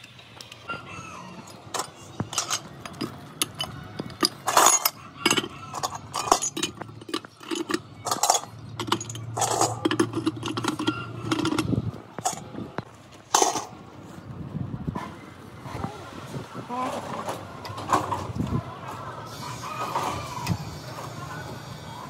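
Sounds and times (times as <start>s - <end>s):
metal parts clinking: 1.5s - 12.6s, 13.2s - 13.8s.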